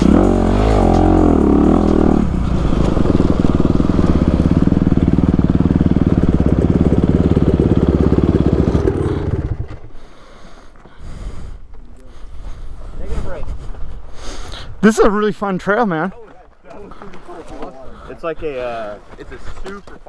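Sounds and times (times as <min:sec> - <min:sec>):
dirt bike engine running: 0:00.0 - 0:10.7.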